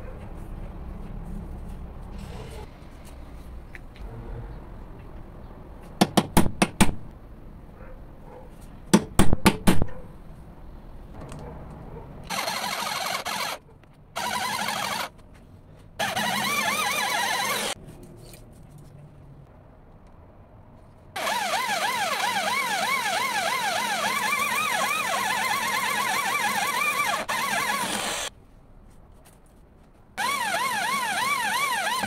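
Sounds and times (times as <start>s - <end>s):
power drill running: 12.3s - 13.6s, 14.2s - 15.1s, 16.0s - 17.8s, 21.2s - 28.3s, 30.2s - 32.0s.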